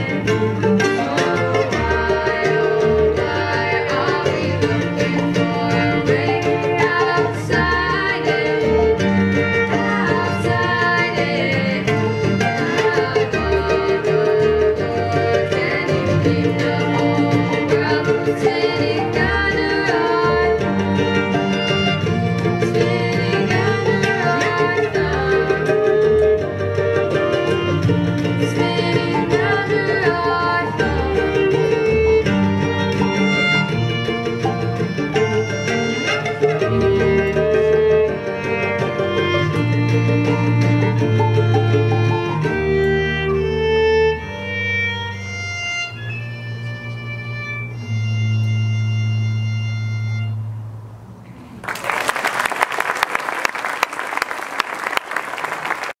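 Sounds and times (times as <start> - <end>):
bluegrass string band playing: 0.0 - 50.8
audience applause: 51.5 - 56.0.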